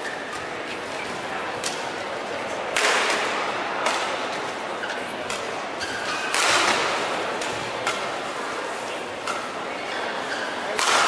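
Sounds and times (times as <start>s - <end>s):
racket hitting shuttlecock: 1.6s - 1.9s, 2.7s - 8.3s, 9.2s - 9.6s, 10.6s - 11.0s.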